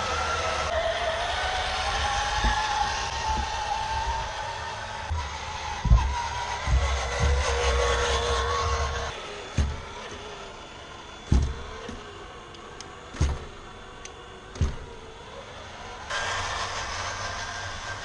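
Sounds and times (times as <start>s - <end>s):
electric motor whining: 0.0s - 18.0s
wheels thumping off ramp: 1.8s - 10.6s, 11.2s - 12.2s.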